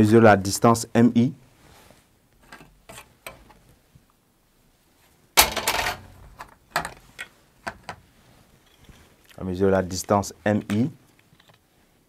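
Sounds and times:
plastic tools clattering on tray: 5.4 - 7.0.

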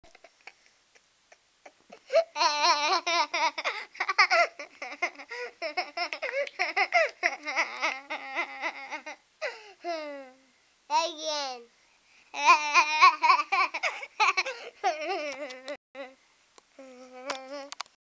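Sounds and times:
boy laughing: 1.3 - 9.2, 12.4 - 15.8.

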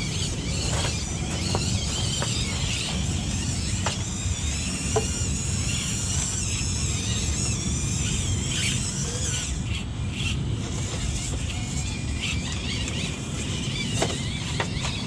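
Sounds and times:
small electric motor whining: 0.0 - 15.0.

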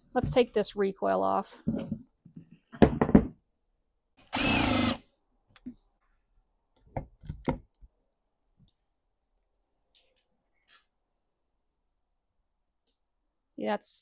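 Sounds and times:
power drill running: 4.2 - 5.0.

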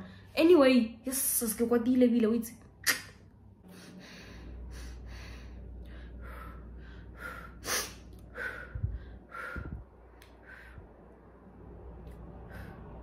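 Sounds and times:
low steady hum: 0.0 - 13.0
woman breathing and sighing: 3.6 - 11.3.

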